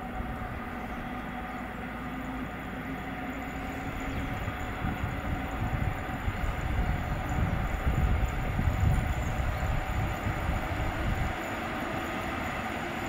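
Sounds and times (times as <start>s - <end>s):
electric locomotive humming: 0.0s - 13.0s
train wheels rumbling on rails: 0.0s - 13.0s.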